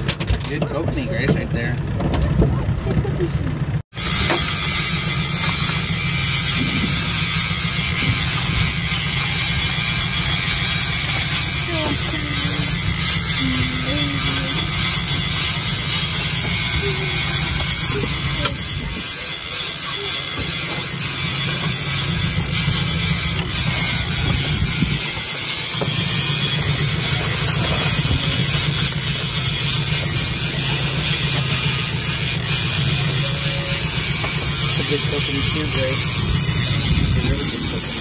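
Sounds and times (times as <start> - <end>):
wind buffeting microphone: 6.5 - 19.5, 22.1 - 25.4, 36.0 - 38.0.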